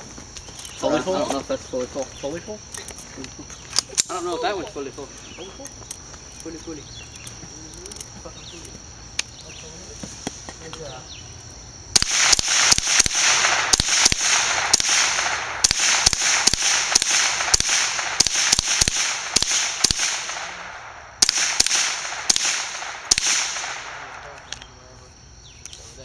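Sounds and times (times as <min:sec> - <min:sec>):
rifle shots: 0:12.0 - 0:24.6.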